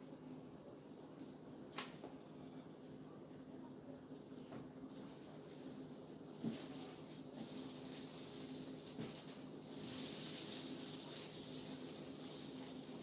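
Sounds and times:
meat and vegetables sizzling: 4.9s - 13.0s.

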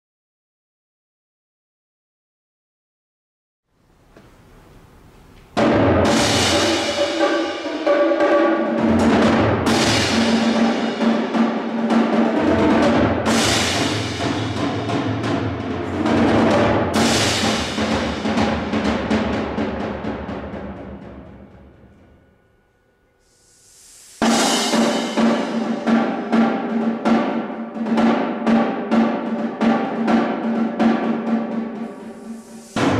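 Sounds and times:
percussion ensemble drums: 5.5s - 22.3s, 23.4s - 32.9s
cymbal strikes ringing: 5.6s - 18.6s, 21.3s - 27.7s, 31.0s - 32.9s.

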